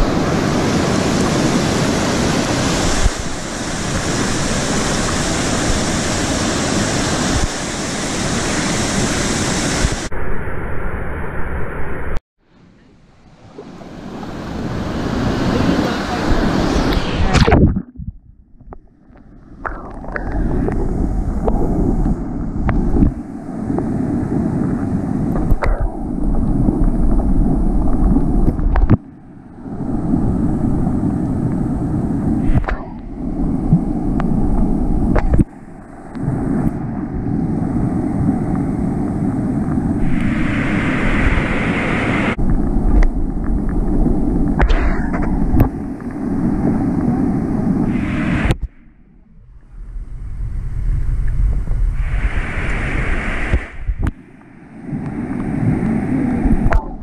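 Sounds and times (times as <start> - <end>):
water rushing over a weir: 0.0 - 10.1, 39.6 - 48.8
wind noise on microphone: 0.0 - 12.2, 13.4 - 57.0.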